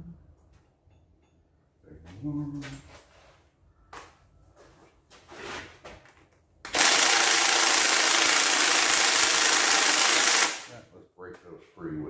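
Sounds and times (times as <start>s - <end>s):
electric ratchet running: 6.7s - 10.7s.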